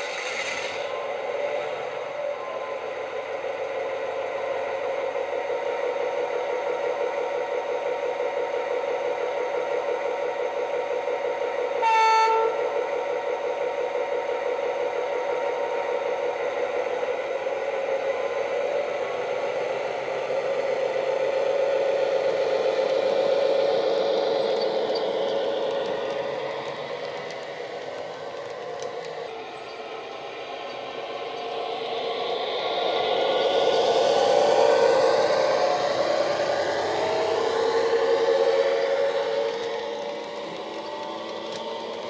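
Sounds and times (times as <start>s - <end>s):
model diesel engine sound: 0.0s - 42.0s
short horn blast: 11.8s - 12.6s.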